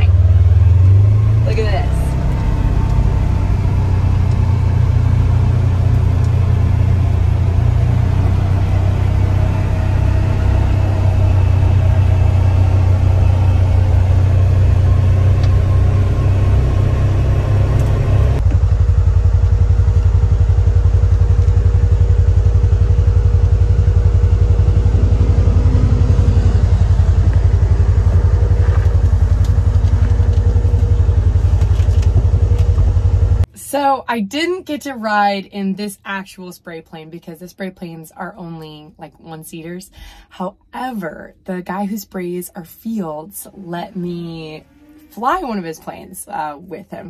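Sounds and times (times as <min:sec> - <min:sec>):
vehicle engine idling: 0:00.0 - 0:33.5.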